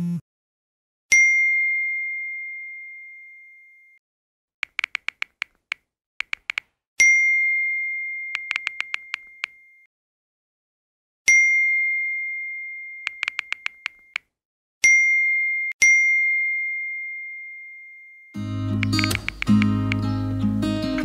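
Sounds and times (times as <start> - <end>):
taps on phone keyboard: 4.6 - 6.7, 8.4 - 9.6, 13.1 - 14.3, 18.8 - 20.1
phone notification ding: 7.0 - 9.9, 11.3 - 14.2, 14.8 - 20.0.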